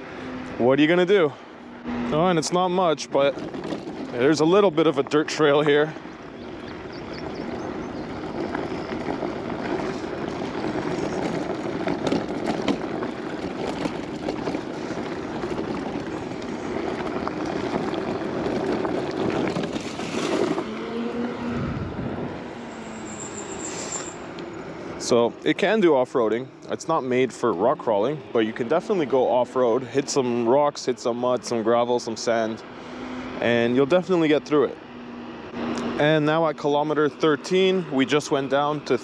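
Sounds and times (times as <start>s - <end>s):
scooter tyres rumbling on dirt: 0.0s - 39.0s
low hum: 5.9s - 25.4s.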